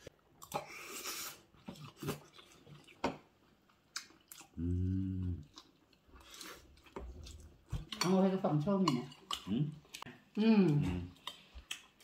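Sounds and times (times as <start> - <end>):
chewing: 0.4 - 12.0
person humming mmm: 4.5 - 5.5, 10.4 - 11.2.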